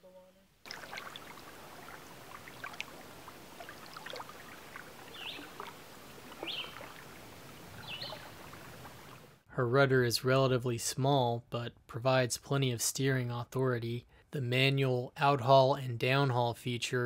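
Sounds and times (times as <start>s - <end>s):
small waves lapping: 0.6s - 9.4s.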